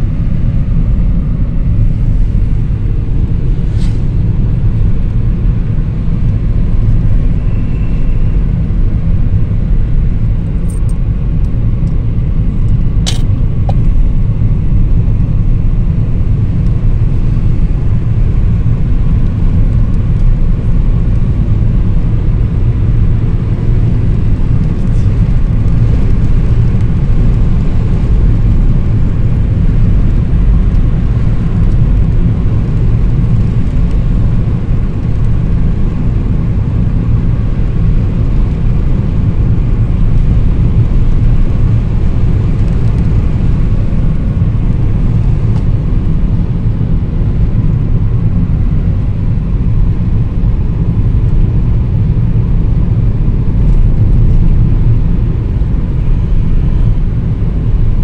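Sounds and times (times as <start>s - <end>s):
car driving rumble: 0.0s - 58.0s
sharp click: 13.1s - 13.8s.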